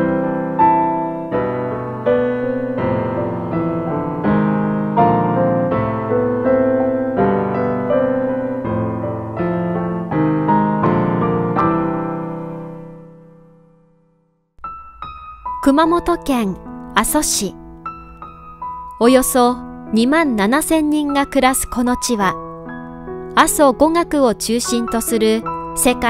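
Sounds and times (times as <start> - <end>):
solo piano piece: 0.0 - 26.0.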